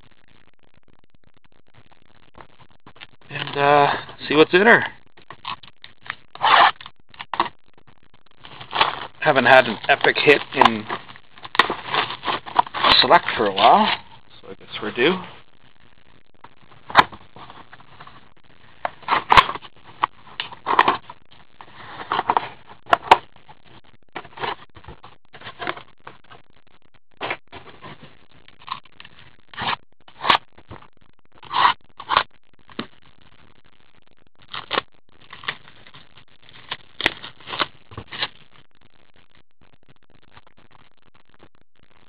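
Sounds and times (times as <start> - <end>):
foil wrappers crinkling: 8.4 - 15.2, 34.5 - 38.4
cardboard scraping: 8.5 - 14.0, 20.4 - 23.2.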